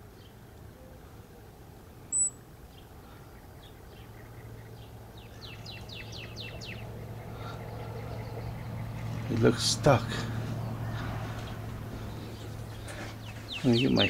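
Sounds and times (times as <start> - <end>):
short high beep: 2.1 - 2.4
faint bird chirps: 2.1 - 9.3
small bird singing: 2.1 - 14.0.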